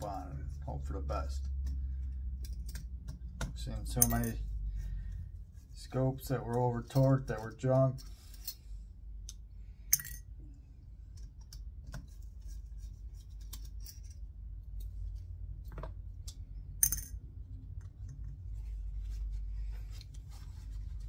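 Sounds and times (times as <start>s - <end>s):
light clicks and taps of tools: 1.4s - 4.4s, 6.3s - 17.1s, 17.7s - 18.4s.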